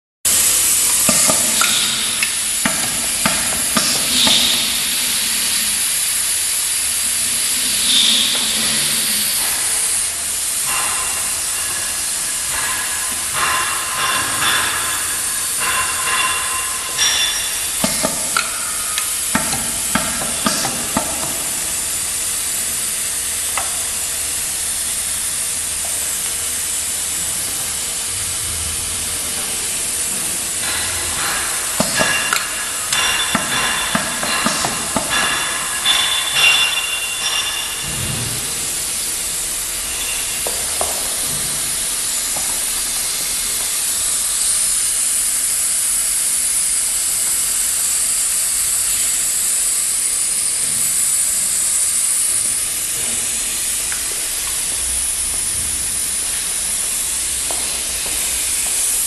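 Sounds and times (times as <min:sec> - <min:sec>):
machine clicks and clacks: 0:00.3 - 0:05.0, 0:10.6 - 0:21.8, 0:30.6 - 0:38.4
labeling machine hiss: 0:00.3 - 0:59.0.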